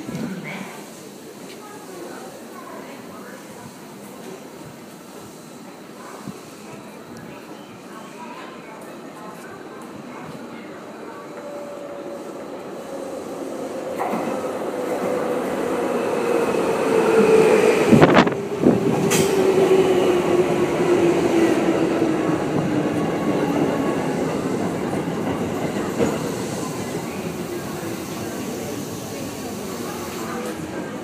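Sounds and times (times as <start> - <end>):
sharp clacks from train wheels: 18.9 - 19.4.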